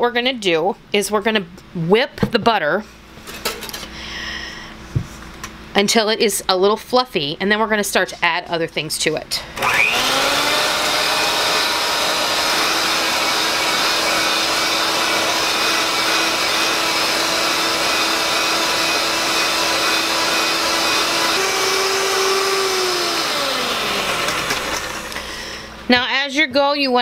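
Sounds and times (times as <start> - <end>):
electric hand mixer whipping: 9.6 - 25.8.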